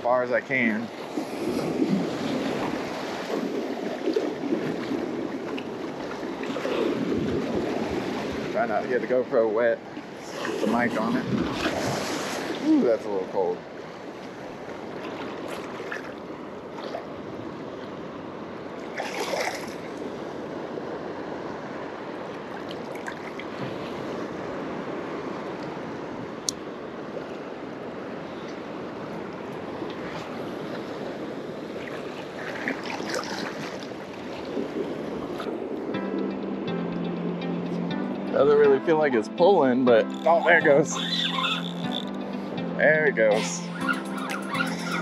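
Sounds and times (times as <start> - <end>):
surf lapping: 0.0 - 45.0
wind on microphone: 0.8 - 8.6, 10.2 - 12.8.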